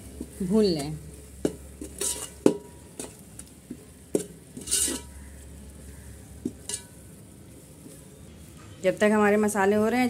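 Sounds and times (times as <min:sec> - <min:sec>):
faint sizzle: 0:00.0 - 0:10.0
spoon knocking pot: 0:00.1 - 0:05.2
metal spoon scraping pot: 0:00.3 - 0:03.2, 0:04.1 - 0:05.5, 0:06.5 - 0:07.1.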